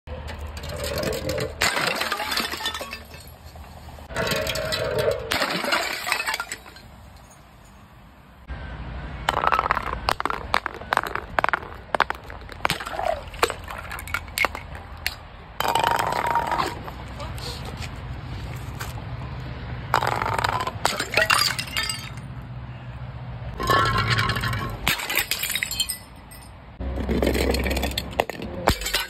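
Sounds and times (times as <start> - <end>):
bottles crashing on concrete: 0.6 - 3.4, 4.2 - 7.4, 9.3 - 16.9, 20.0 - 22.2, 23.6 - 29.0
glass bottle clinking on concrete: 4.4 - 7.8, 20.0 - 22.2, 23.6 - 26.5, 27.1 - 29.0.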